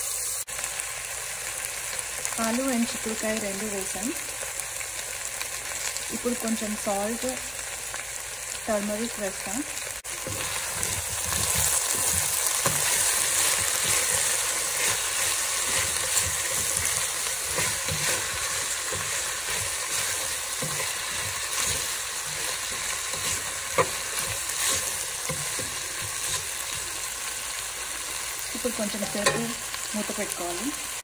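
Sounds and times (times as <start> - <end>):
vegetables sizzling in a pan: 0.0 - 31.0
wooden spatula scraping a pan: 10.1 - 27.0.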